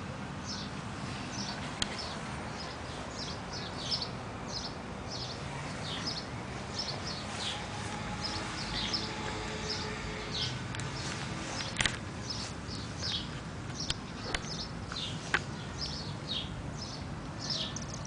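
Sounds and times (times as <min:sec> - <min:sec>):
low background hum: 0:00.0 - 0:18.0
small birds chirping: 0:00.4 - 0:18.0.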